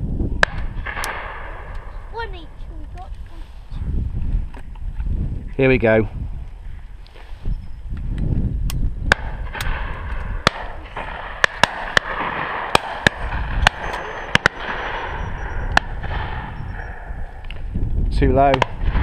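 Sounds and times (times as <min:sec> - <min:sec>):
wind rumble: 0:00.0 - 0:19.0
distant shotgun shots: 0:09.1 - 0:17.3.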